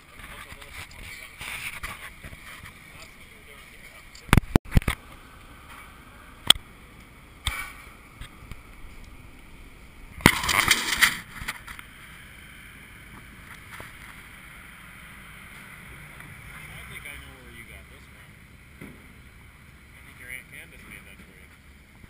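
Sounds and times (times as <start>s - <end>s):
scraping rustle: 0.0s - 4.0s
low street noise: 0.0s - 22.0s.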